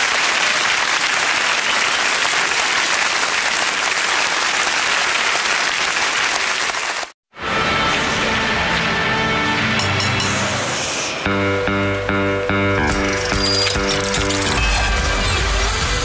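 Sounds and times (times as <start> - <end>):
audience applauding: 0.0 - 7.2
music: 7.4 - 16.0.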